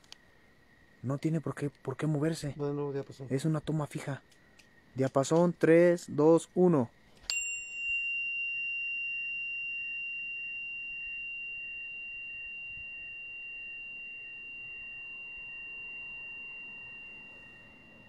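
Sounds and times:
tuning fork ringing: 0:07.2 - 0:18.0.

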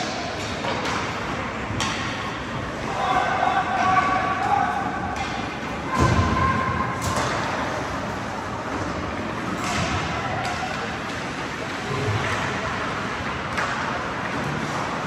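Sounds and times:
hockey sticks or puck knocking: 0:00.0 - 0:02.2.

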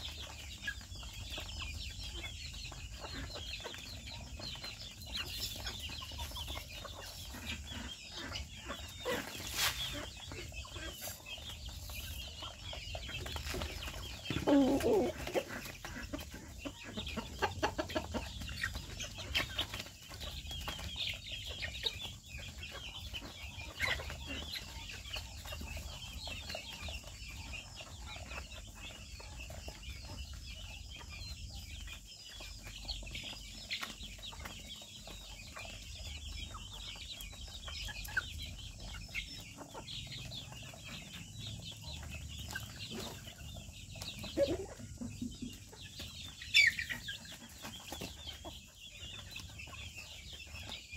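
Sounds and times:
chickens clucking: 0:00.0 - 0:50.9
chicks peeping: 0:00.0 - 0:50.9.

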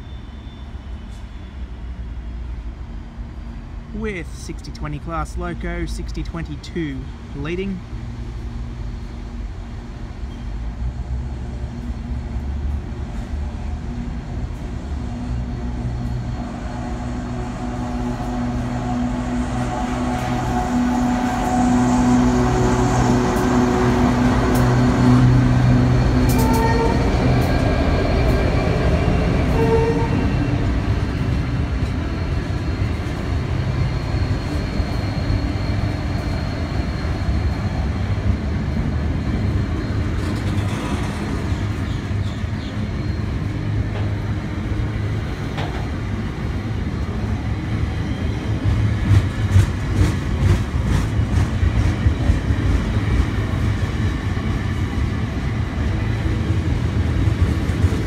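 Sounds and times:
diesel locomotive engine: 0:00.0 - 0:58.0
train wheels rumbling on rail: 0:00.0 - 0:58.0
wheels clacking over rail joints: 0:40.0 - 0:42.4.

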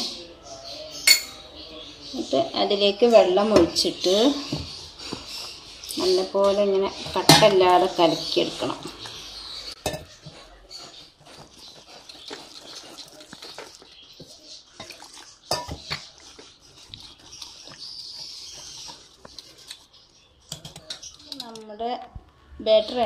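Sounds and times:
whisk beating batter in steel pot: 0:10.8 - 0:21.2.

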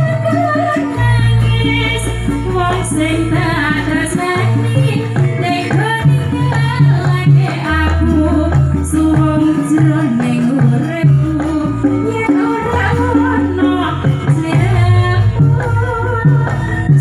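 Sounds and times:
live band with drums: 0:00.0 - 0:17.0
woman singing into microphone: 0:00.0 - 0:17.0
deep bass notes: 0:11.2 - 0:17.0.

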